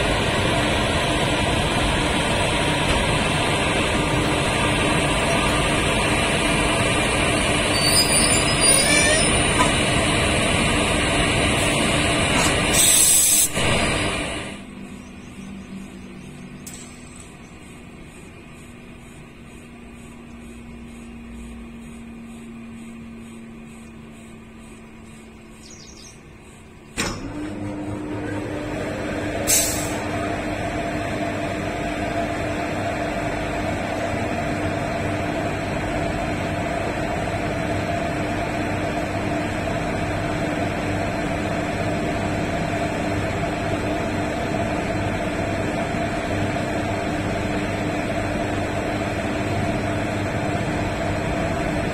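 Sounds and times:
locomotive machines whining: 0.0 - 51.9
loud steady locomotive hum: 0.0 - 51.9
air hiss: 12.7 - 14.4, 29.5 - 30.0.

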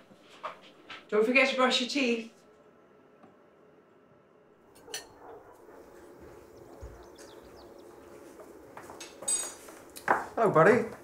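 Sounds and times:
faint bird chirps: 6.0 - 8.3.

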